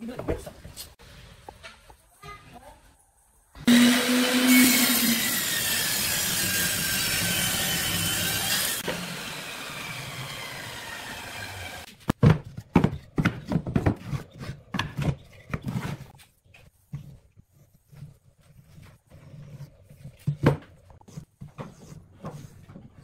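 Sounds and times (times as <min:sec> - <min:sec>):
table saw cutting wood: 0:03.6 - 0:11.9.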